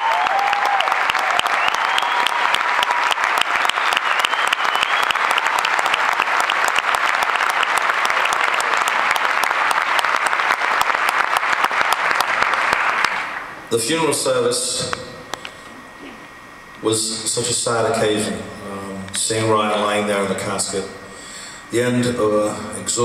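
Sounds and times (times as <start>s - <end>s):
audience applauding: 0.0s - 13.6s
sliding whistles: 1.3s - 5.6s.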